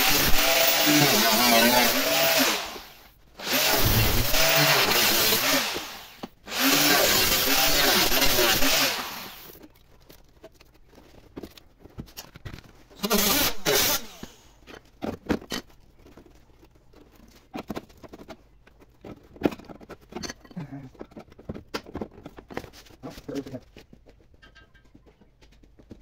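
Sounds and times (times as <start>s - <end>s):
angle grinder cutting steel: 0.0s - 9.6s, 13.0s - 14.4s.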